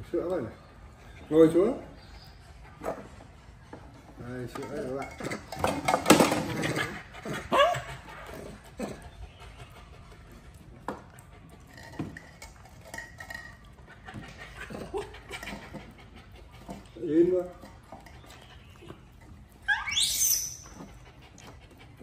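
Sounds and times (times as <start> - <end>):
cups and dishes clinking: 11.7 - 14.3
monkey squeaky call: 19.6 - 20.9.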